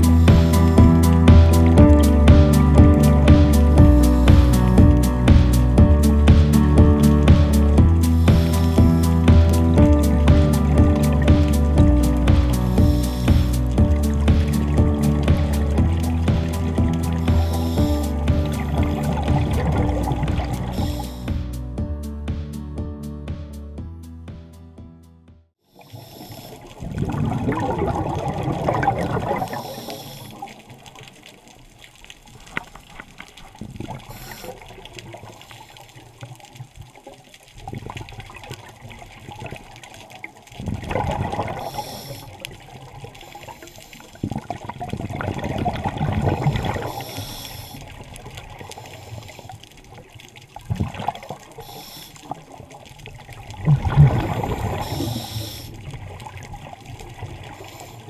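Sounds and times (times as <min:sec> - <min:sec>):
bubbles gurgling underwater: 0:07.7 - 0:21.2, 0:26.1 - 0:35.5, 0:36.4 - 0:58.0
soft regulator hiss: 0:08.1 - 0:09.3, 0:12.5 - 0:13.8, 0:17.3 - 0:19.2, 0:20.6 - 0:21.4, 0:25.7 - 0:26.8, 0:29.4 - 0:30.6, 0:34.0 - 0:36.3, 0:41.5 - 0:44.2, 0:46.6 - 0:50.0, 0:51.5 - 0:52.7, 0:54.2 - 0:56.0, 0:57.4 - 0:58.0.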